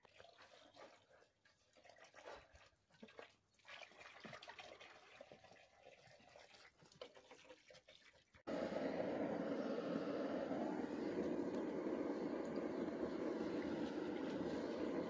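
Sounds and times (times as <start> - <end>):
gas torch hissing: 8.5 - 15.0.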